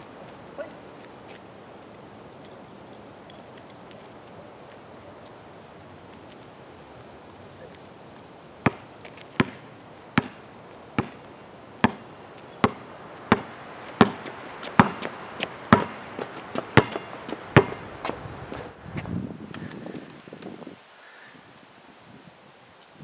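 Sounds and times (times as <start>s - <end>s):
basketball bouncing on concrete: 8.6s - 10.4s, 11.0s - 17.8s.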